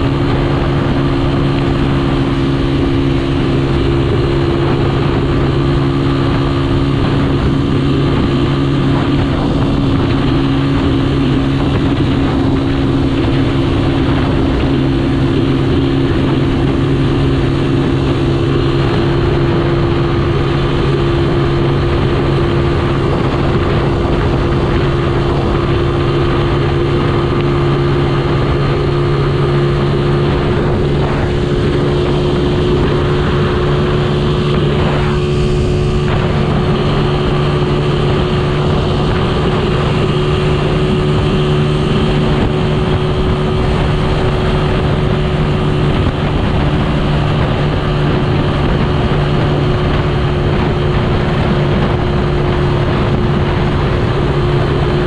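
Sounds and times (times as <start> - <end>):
motorcycle engine cruising: 0.0 - 55.0
wind and road noise: 0.0 - 55.0.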